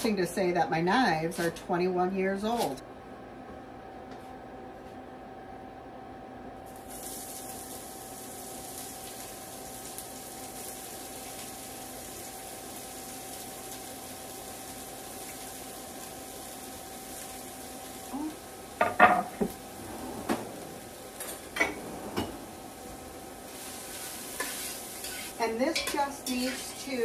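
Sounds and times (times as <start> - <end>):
leeks sizzling in hot oil: 6.7 - 18.9, 23.4 - 27.0.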